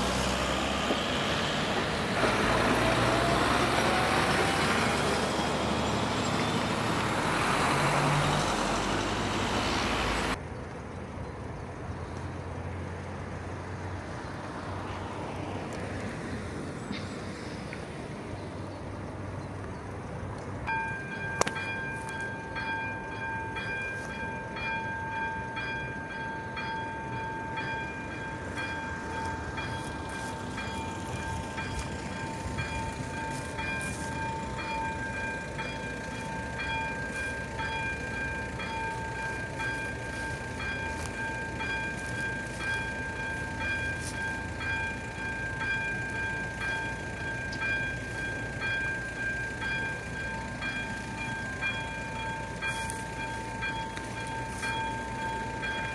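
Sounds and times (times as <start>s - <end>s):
level crossing warning bell ringing: 20.6s - 55.9s.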